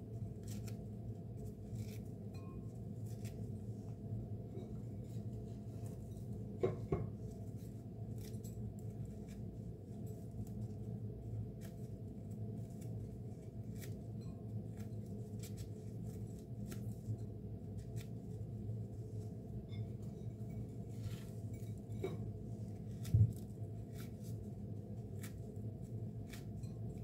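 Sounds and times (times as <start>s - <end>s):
steady low hum: 0.0s - 27.0s
crusty bread tearing: 0.2s - 2.4s, 7.2s - 18.5s
dry crackles into glass bowl: 1.4s - 3.5s, 19.6s - 27.0s.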